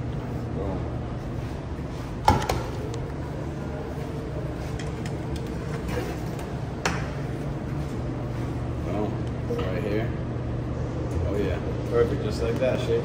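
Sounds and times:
kitchen machinery hum: 0.0 - 13.0.

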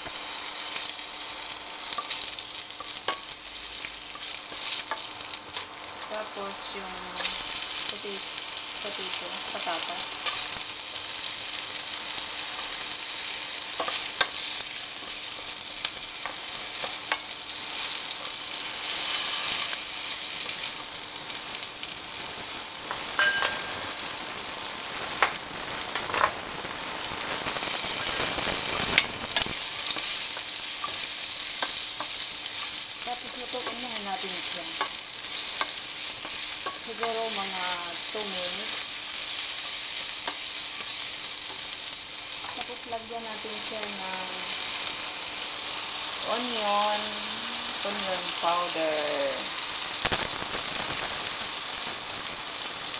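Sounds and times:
vegetables sizzling in hot oil: 0.0 - 52.9
spatula clicking and scraping: 1.9 - 5.7, 13.7 - 18.4, 28.8 - 37.8, 38.6 - 41.6.

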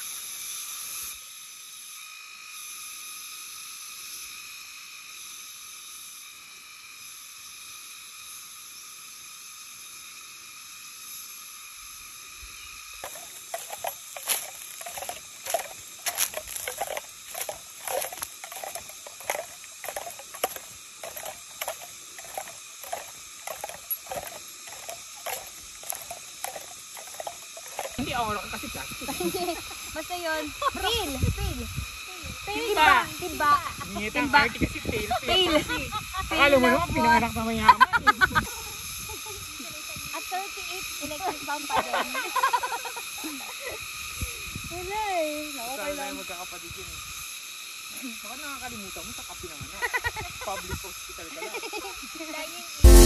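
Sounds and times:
insects chorus: 0.0 - 53.0
footsteps on dry leaves: 13.0 - 28.0.

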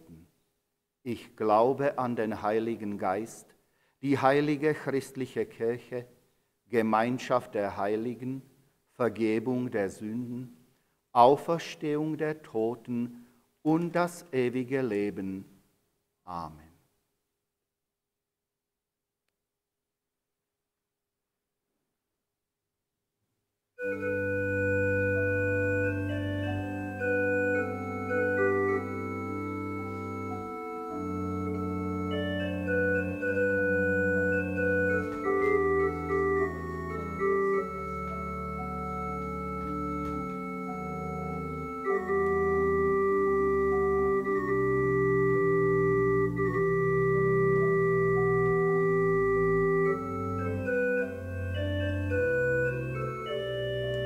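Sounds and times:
church organ playing chords: 23.8 - 54.0.

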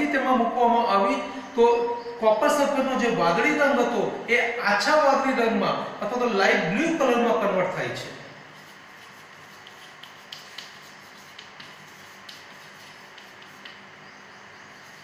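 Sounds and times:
steady low hiss: 0.0 - 15.0
chalk writing on blackboard: 8.5 - 15.0.

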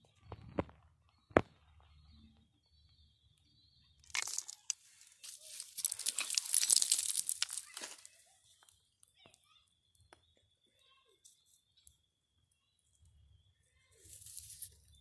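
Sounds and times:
rock fragments crunching and scraping: 4.1 - 8.2, 14.1 - 14.7.

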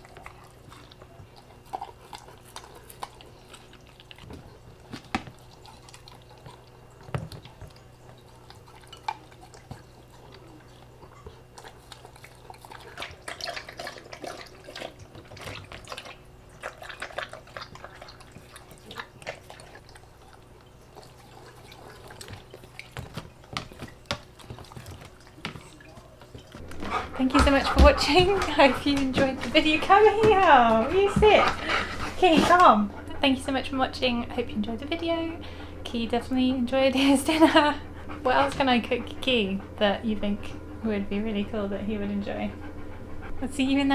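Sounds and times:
dog lapping water: 0.0 - 34.0
dog licking ceramic food bowl: 0.0 - 34.0
faint steady hum: 0.0 - 43.9.

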